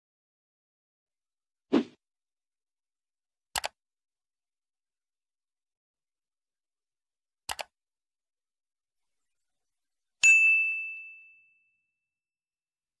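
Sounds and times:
notification bell ding: 0:10.2 - 0:11.8.

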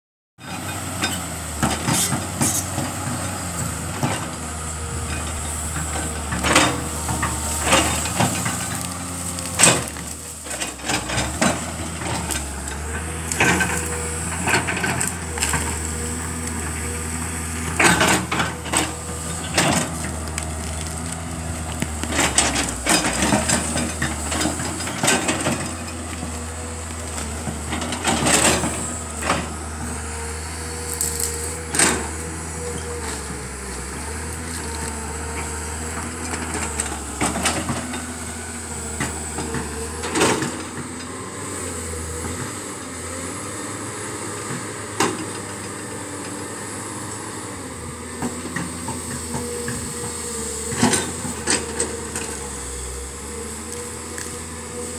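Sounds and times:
excavator diesel engine running: 0:00.4 - 0:54.9
wood and branches breaking: 0:07.8 - 0:12.5, 0:19.6 - 0:23.9.

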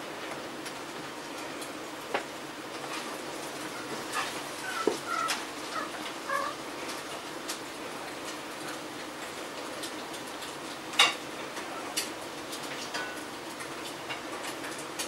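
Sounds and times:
cats chirping: 0:03.6 - 0:06.6.

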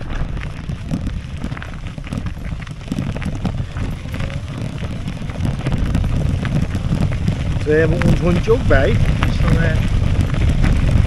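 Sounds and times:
knocks and rattles from bumpy path: 0:00.0 - 0:11.0
wind buffeting microphone: 0:00.0 - 0:11.0.

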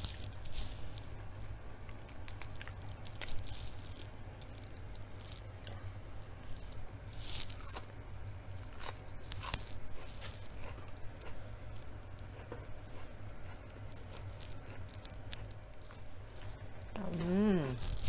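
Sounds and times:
lettuce chewed with crunch: 0:00.0 - 0:05.8, 0:06.4 - 0:18.0
lettuce tearing: 0:01.9 - 0:05.4.

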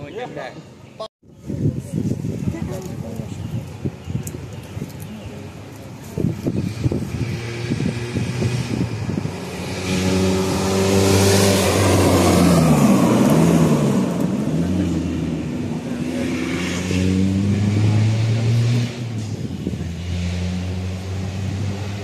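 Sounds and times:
rally car engine passing at speed: 0:06.7 - 0:22.0.

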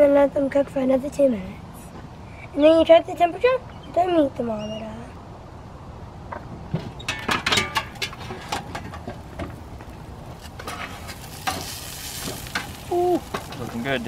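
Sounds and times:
steaks sizzling on grill: 0:10.3 - 0:14.0.

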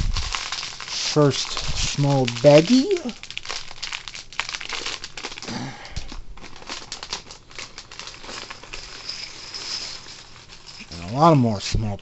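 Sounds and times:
plastic bag crinkling and tearing: 0:00.0 - 0:11.3.

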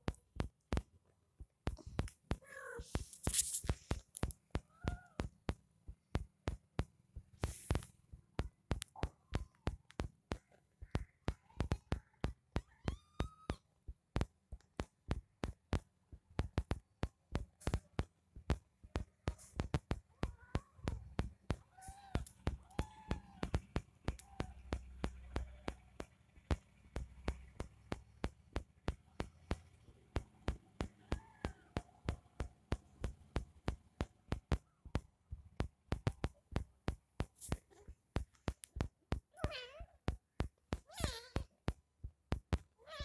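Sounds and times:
sharp regular clicks: 0:00.0 - 0:42.8
kitten mewing: 0:02.4 - 0:03.0, 0:04.6 - 0:05.3, 0:20.1 - 0:23.5, 0:39.3 - 0:40.0, 0:40.8 - 0:41.5, 0:42.8 - 0:43.0
kittens suckling: 0:37.2 - 0:41.6.

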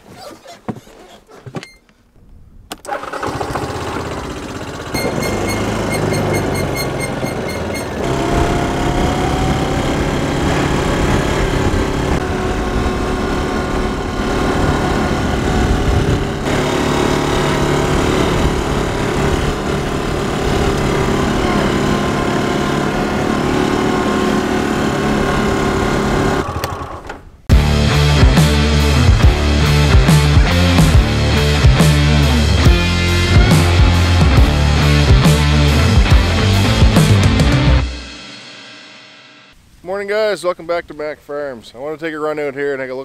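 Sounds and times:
utility vehicle engine running: 0:02.8 - 0:27.7.

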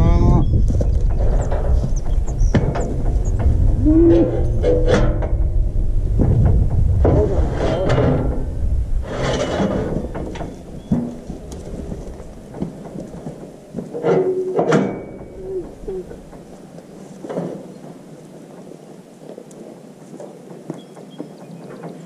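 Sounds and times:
low rumble: 0:00.0 - 0:13.7, 0:14.9 - 0:16.6
steel cattle chute rattling: 0:01.0 - 0:16.6.

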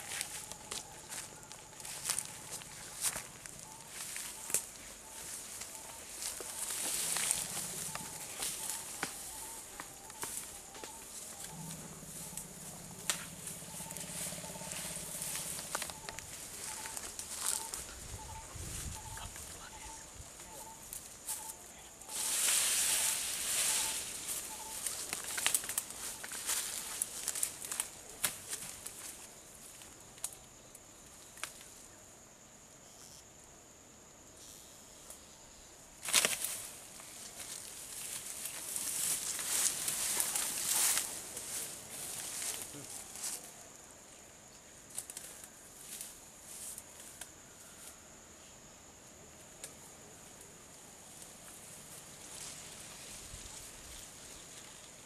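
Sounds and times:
grass and undergrowth rustling: 0:00.0 - 0:30.4, 0:36.0 - 0:43.6, 0:49.6 - 0:55.0
steady high hiss: 0:00.0 - 0:55.0
stems snapping and crackling: 0:00.1 - 0:04.8, 0:05.6 - 0:11.5, 0:12.3 - 0:13.6, 0:14.2 - 0:17.8, 0:23.6 - 0:30.4, 0:31.4 - 0:31.7, 0:36.0 - 0:41.6, 0:44.9 - 0:46.1.

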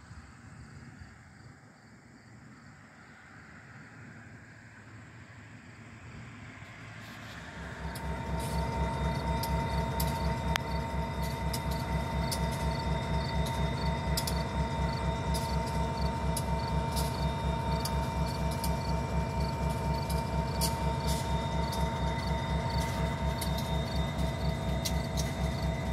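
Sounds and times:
constant engine whine: 0:00.0 - 0:25.9
diesel locomotive idling: 0:05.9 - 0:25.9.

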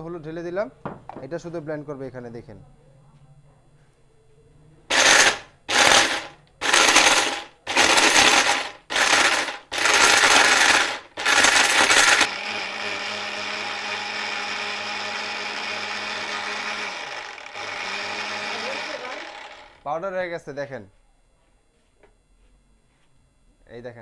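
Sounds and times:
mixer grinder grinding: 0:04.9 - 0:19.9.

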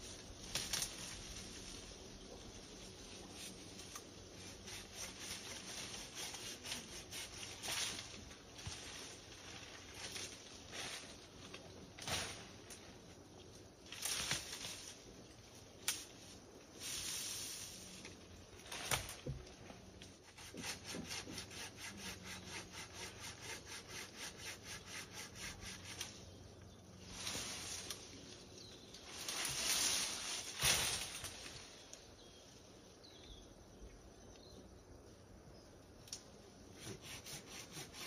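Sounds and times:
hand saw cutting branch: 0:04.4 - 0:08.0, 0:20.2 - 0:26.2, 0:36.7 - 0:38.0
saw scraping: 0:20.2 - 0:26.1, 0:36.7 - 0:38.0.

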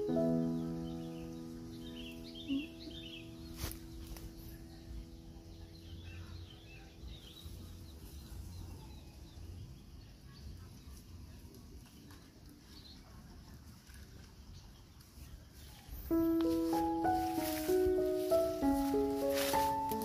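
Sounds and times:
held music tones: 0:00.0 - 0:08.5, 0:16.0 - 0:20.0
faint bird chirps: 0:00.0 - 0:13.3.

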